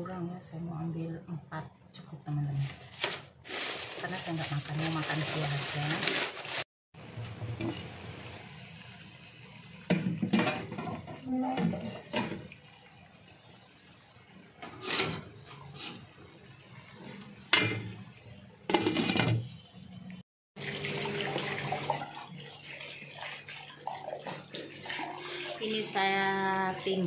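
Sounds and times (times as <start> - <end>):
kitchenware clattering: 9.9 - 12.4.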